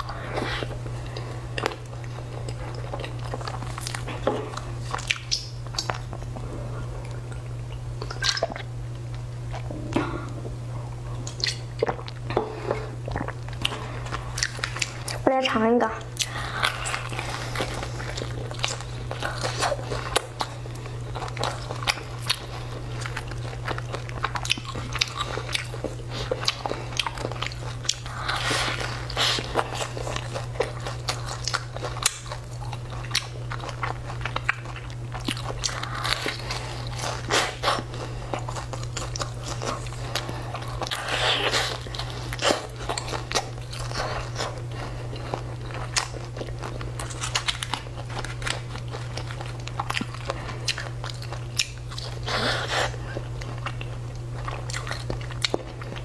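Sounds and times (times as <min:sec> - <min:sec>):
biting and chewing crisp food: 0:00.0 - 0:09.8, 0:11.0 - 0:56.0
steady low hum: 0:00.0 - 0:56.0.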